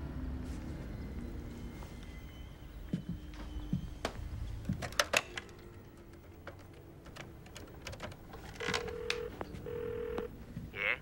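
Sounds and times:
faint dial tone: 8.5 - 10.3.

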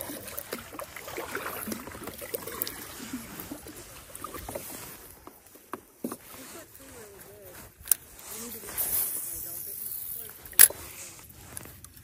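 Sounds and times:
water lapping and dripping: 0.0 - 5.5.

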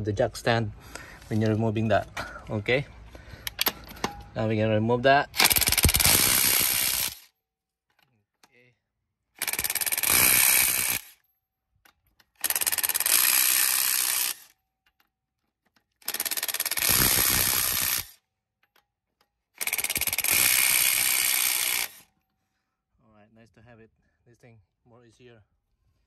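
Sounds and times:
impact wrench hammering: 3.5 - 4.4, 5.4 - 7.2, 9.4 - 11.1, 12.4 - 14.5, 16.0 - 18.1, 19.6 - 22.0.

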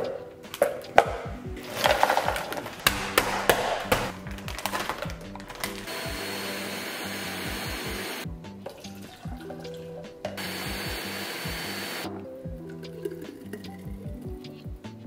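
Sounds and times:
background music with steady beat: 0.0 - 15.0
blender running on high: 5.9 - 8.2, 10.4 - 12.1.

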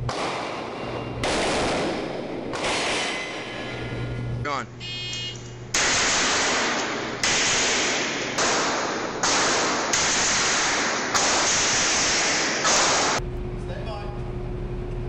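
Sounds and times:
gunshots: 0.0 - 3.9, 5.7 - 13.2.

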